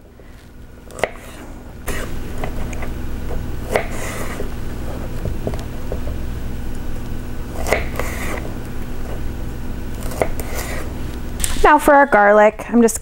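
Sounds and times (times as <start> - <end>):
steady low hum: 0.0 - 13.0
knife cutting cauliflower: 0.9 - 2.9, 3.7 - 4.5, 7.5 - 8.5, 10.0 - 11.6.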